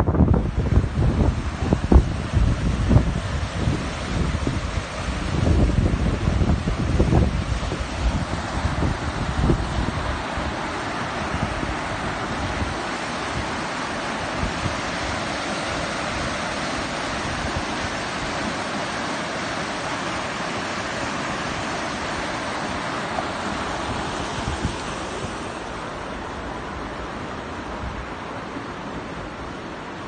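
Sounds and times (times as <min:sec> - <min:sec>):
wind buffeting microphone: 0:00.0 - 0:28.4
rushing river water: 0:00.0 - 0:30.0.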